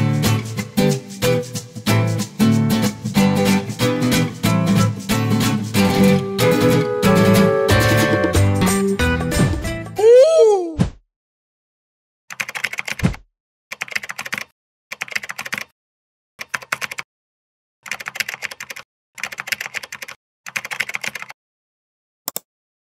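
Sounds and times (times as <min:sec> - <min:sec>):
computer keyboard typing: 0:12.3 - 0:15.7, 0:16.4 - 0:17.1, 0:17.8 - 0:21.4.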